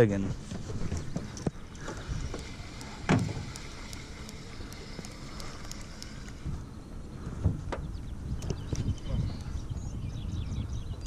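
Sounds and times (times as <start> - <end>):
light clicks: 1.3 - 6.4.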